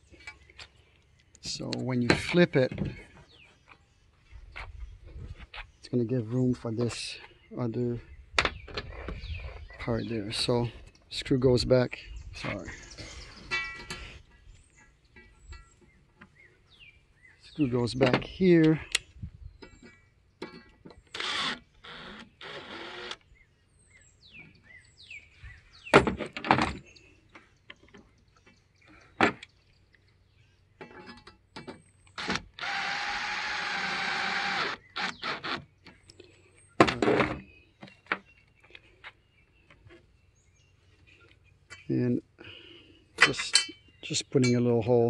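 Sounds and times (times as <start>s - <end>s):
clicks and knocks of metal hardware: 19.6s - 21.0s, 30.8s - 31.8s, 43.2s - 44.8s
cordless drill motor whirring: 21.1s - 23.2s, 32.2s - 35.6s.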